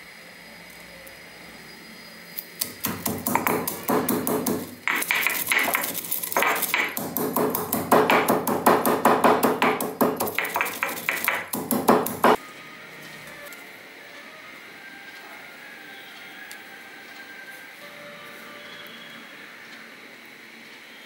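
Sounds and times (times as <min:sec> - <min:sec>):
stone pestle pounding in mortar: 0:02.6 - 0:12.4.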